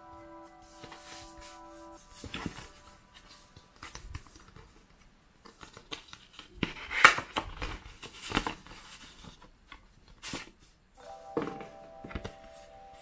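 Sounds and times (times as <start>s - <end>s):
paper envelope rustling: 0.8s - 9.5s.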